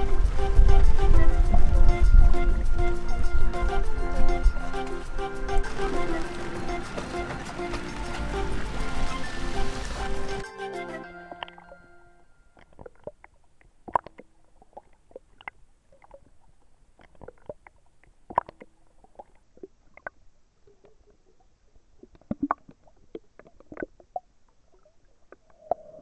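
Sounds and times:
water sloshing and gurgling: 0.0s - 10.4s, 12.4s - 26.0s
sharp pops and clicks: 12.6s - 16.4s, 17.0s - 20.2s, 22.0s - 25.9s.

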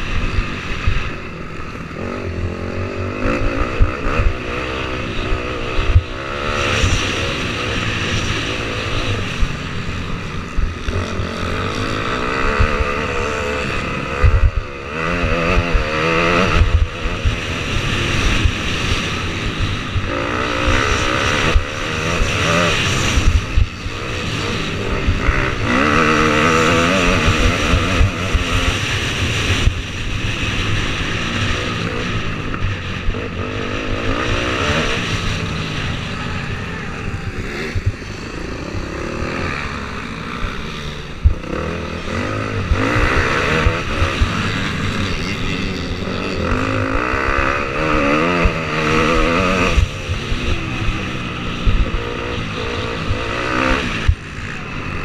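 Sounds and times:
motocross engine revving: 0.0s - 55.0s.

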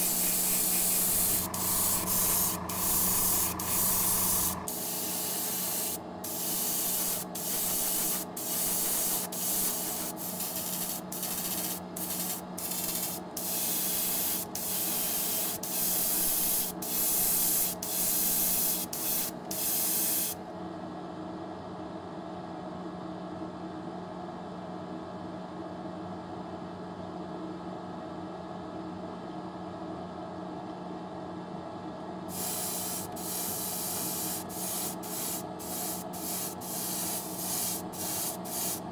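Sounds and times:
steady machine hum: 0.0s - 19.8s, 32.3s - 38.9s
airbrush spraying in hissing bursts: 0.0s - 20.4s, 32.3s - 38.9s.

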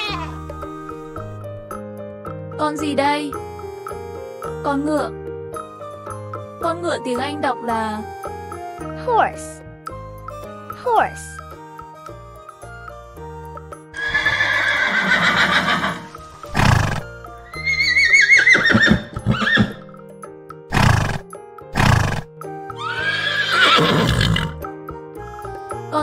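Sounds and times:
light background tune: 0.0s - 26.0s
horse snorting: 14.0s - 17.2s, 20.7s - 22.3s, 23.0s - 24.6s
horse whinnying: 14.0s - 19.9s, 20.7s - 24.6s.

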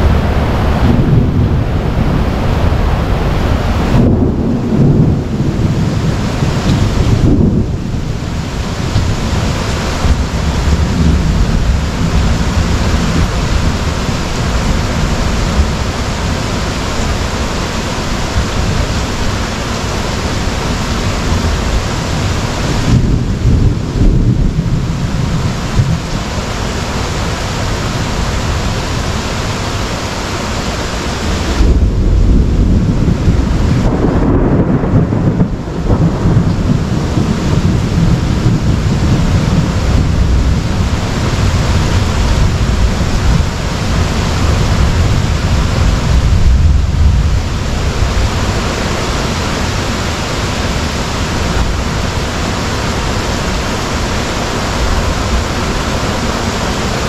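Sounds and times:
heavy rain pouring: 0.0s - 57.0s
thunder rumbling: 0.0s - 57.0s.

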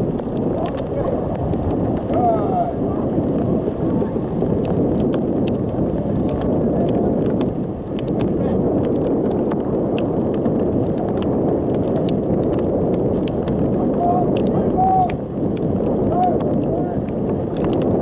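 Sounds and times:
wind buffeting microphone: 0.0s - 18.0s
faint light ticks: 4.6s - 13.6s, 14.3s - 18.0s.

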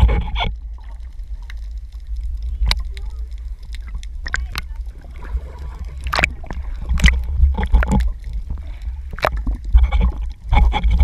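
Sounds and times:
low rumble: 0.0s - 11.0s
water sloshing and gurgling: 0.0s - 11.0s
sharp clicks and knocks: 6.0s - 11.0s.

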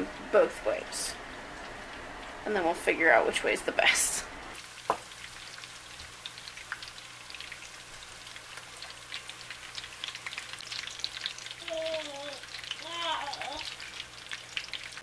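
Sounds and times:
oil sizzling and crackling: 0.0s - 15.0s.

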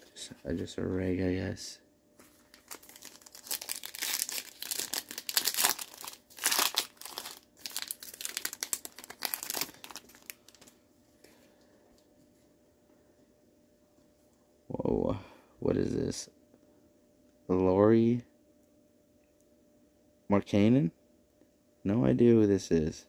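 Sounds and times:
foil wrapper crinkling and tearing: 2.4s - 10.8s.

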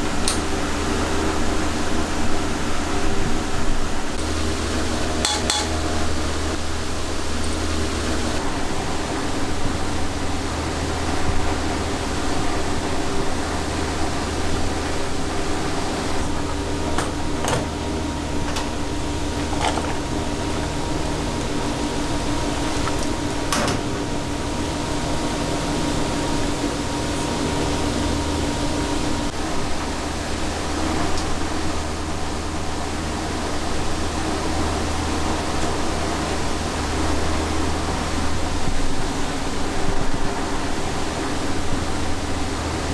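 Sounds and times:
cookers and ventilation hum: 0.0s - 42.9s
utensils clinking: 5.2s - 5.8s.

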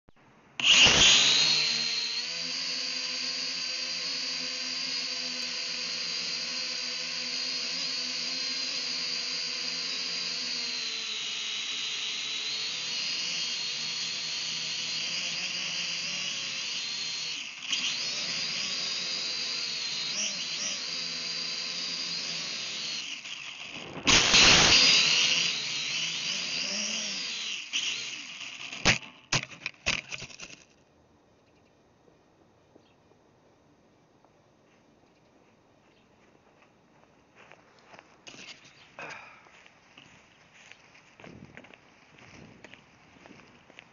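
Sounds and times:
drone propellers whining: 0.6s - 29.3s.

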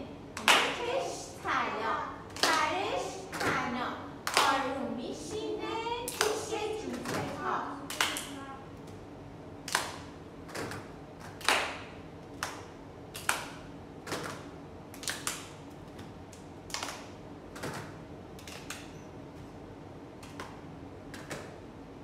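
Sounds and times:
group hand clapping: 0.4s - 1.2s, 2.2s - 4.8s, 6.1s - 9.0s, 9.6s - 19.0s, 20.2s - 21.6s.

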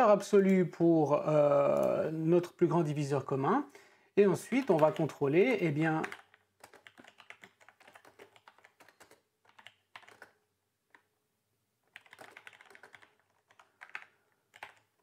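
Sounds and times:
faint keyboard typing: 1.6s - 2.1s, 4.3s - 11.2s, 11.8s - 15.0s.

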